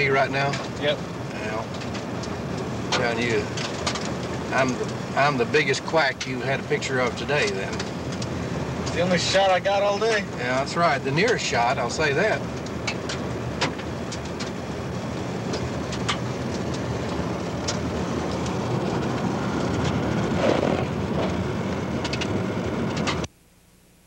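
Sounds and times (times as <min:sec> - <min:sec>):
light clicks and rattles: 0:00.0 - 0:09.4
car cabin road rumble: 0:00.0 - 0:23.3.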